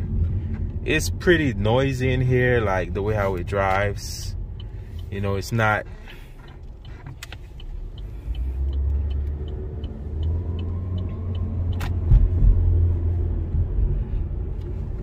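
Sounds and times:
road and engine rumble in car cabin: 0.0s - 15.0s
light even ticking: 0.7s - 12.1s.

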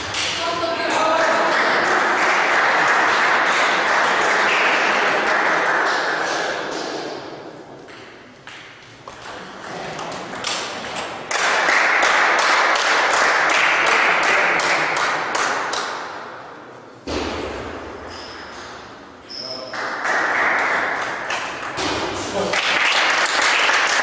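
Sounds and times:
applause in a large hall: 0.0s - 6.8s, 11.3s - 16.0s, 19.7s - 21.6s, 22.3s - 24.0s.

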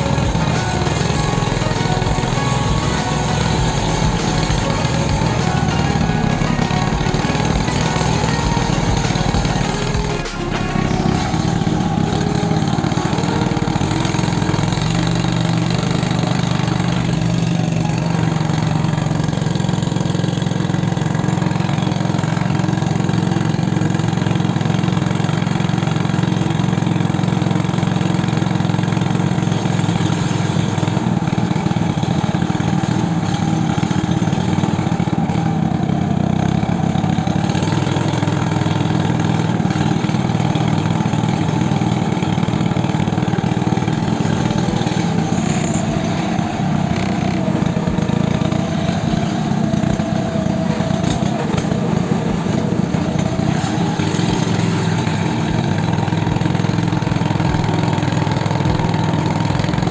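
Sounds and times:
small engine droning: 0.0s - 59.9s.

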